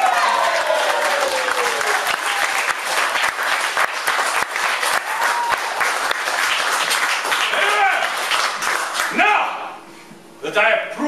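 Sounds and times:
audience clapping: 0.0s - 9.2s
audience cheering: 0.0s - 9.8s
short high shout: 7.6s - 8.1s, 9.1s - 9.8s.

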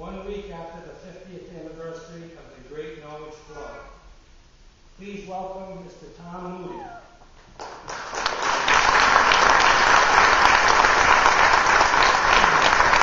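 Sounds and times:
audience applauding: 7.6s - 13.0s.

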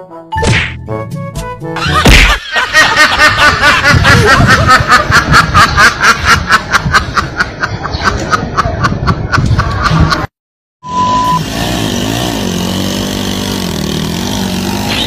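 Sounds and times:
sharp whack: 0.4s - 0.8s, 2.0s - 2.4s.

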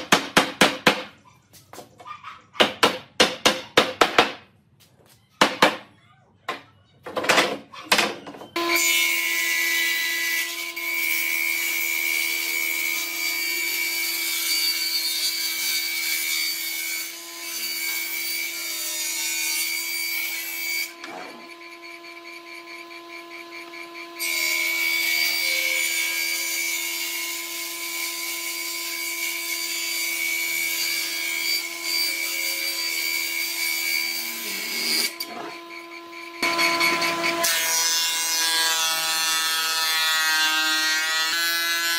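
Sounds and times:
table saw ripping a board: 8.6s - 21.8s, 24.1s - 35.7s, 36.4s - 41.9s.

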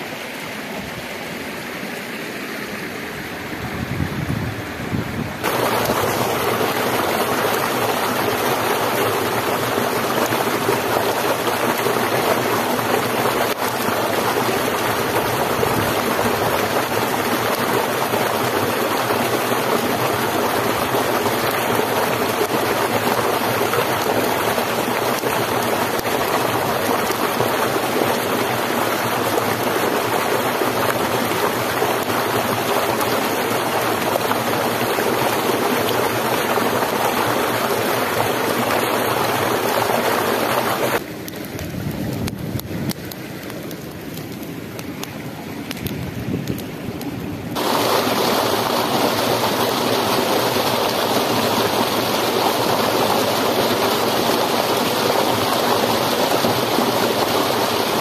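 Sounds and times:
flowing stream rushing: 0.0s - 58.0s.

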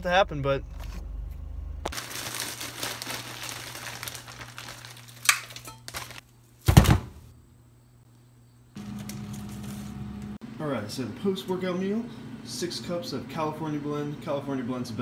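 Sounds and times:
plastic bag crinkling: 1.9s - 6.2s
loud thump: 6.7s - 7.2s.

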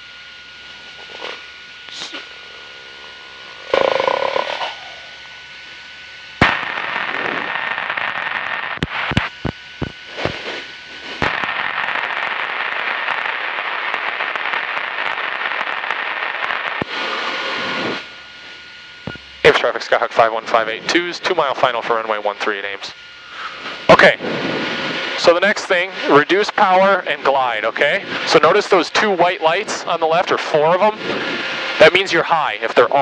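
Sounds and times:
radio static hiss: 0.0s - 33.0s
radio keying clicks: 19.0s - 19.5s.

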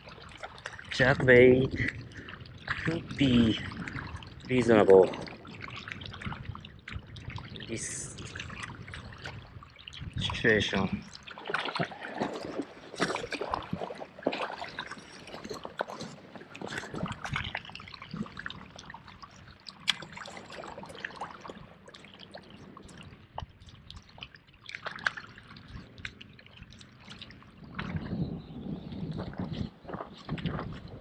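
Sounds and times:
waves lapping on rocky shore: 10.4s - 23.0s.

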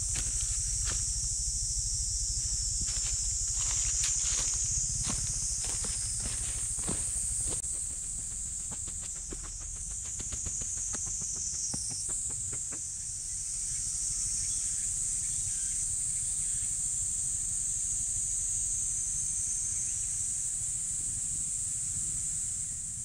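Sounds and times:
insects droning: 0.0s - 23.0s
footsteps on path and stairs: 2.8s - 12.8s.

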